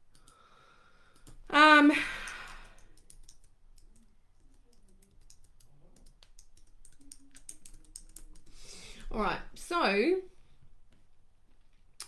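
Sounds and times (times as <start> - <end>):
typing on computer keyboard: 2.2 - 8.5.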